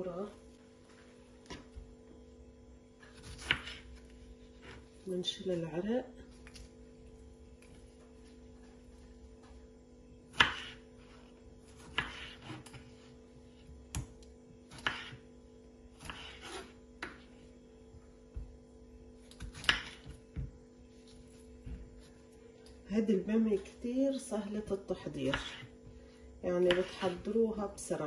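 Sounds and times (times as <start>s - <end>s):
knife slicing tomatoes on board: 3.0s - 4.0s, 10.3s - 13.0s, 14.7s - 15.3s, 15.9s - 17.2s, 19.3s - 20.4s, 25.3s - 25.7s, 26.6s - 27.4s.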